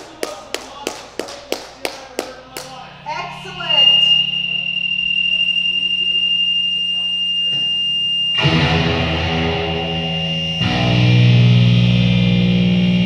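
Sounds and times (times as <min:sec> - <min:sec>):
amplifier high whine: 0:02.7 - 0:13.0
low hum: 0:02.8 - 0:13.0
distorted electric guitar chord: 0:08.2 - 0:13.0.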